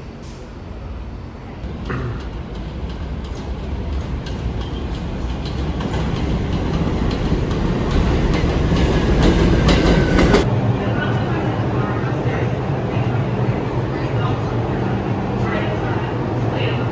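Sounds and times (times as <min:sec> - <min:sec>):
train rumble on elevated track: 0:00.0 - 0:16.9
wheels clicking over rail joints: 0:02.2 - 0:10.4.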